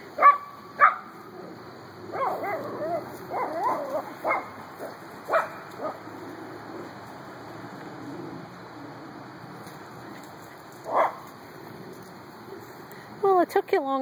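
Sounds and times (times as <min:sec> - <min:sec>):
dog yelping: 0:02.1 - 0:06.0
small dog yapping: 0:02.1 - 0:06.0, 0:10.9 - 0:11.2.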